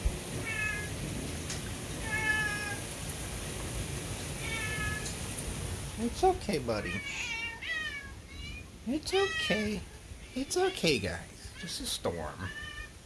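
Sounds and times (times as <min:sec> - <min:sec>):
low storm rumble: 0:00.0 - 0:13.0
cat meowing: 0:00.4 - 0:00.9, 0:02.0 - 0:02.8, 0:04.4 - 0:05.1, 0:06.7 - 0:13.0.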